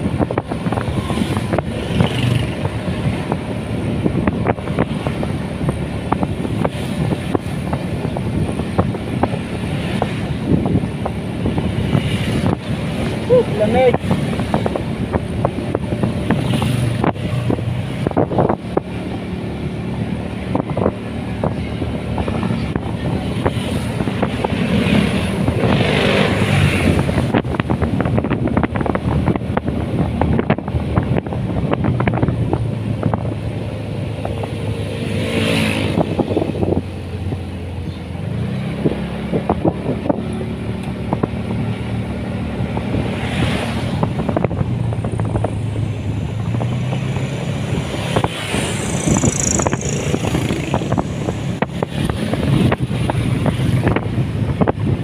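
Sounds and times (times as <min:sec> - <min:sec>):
wind buffeting microphone: 0:00.0 - 0:55.0
motorcycle engine running: 0:35.7 - 0:55.0.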